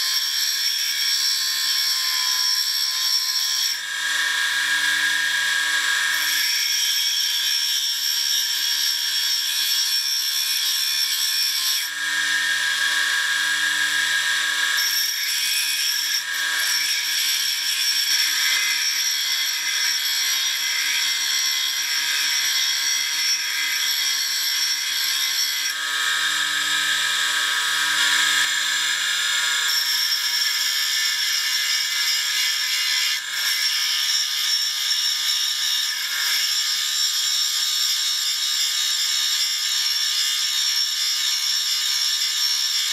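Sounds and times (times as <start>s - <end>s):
tool grinding hiss: 0.0s - 42.9s
grinder motor humming: 12.0s - 34.2s.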